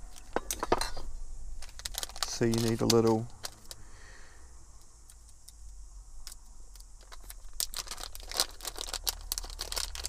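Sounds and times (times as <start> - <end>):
packet crinkling: 1.6 - 3.8, 6.3 - 10.0.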